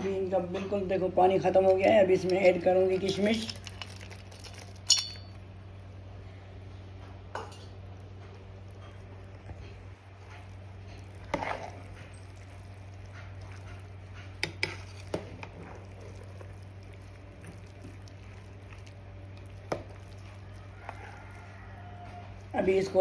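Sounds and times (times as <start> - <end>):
steady low hum: 0.0 - 23.0
spoon stirring rice: 8.2 - 23.0.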